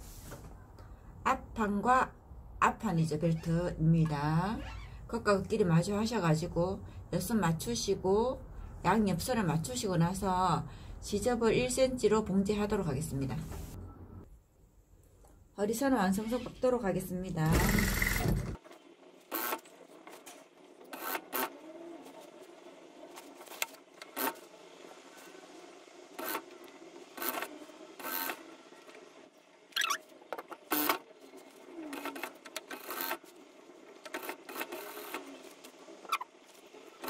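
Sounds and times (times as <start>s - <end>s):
fabric rustling and rubbing: 0.0s - 0.5s.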